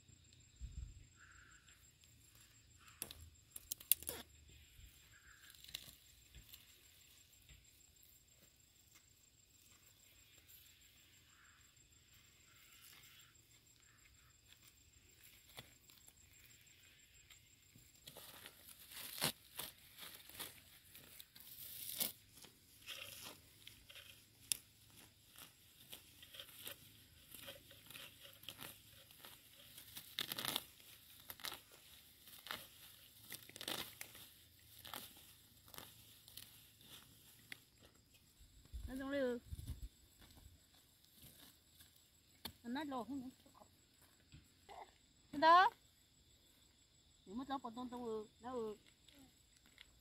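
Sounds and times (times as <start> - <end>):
weeds rustling and tearing: 17.8 - 37.6.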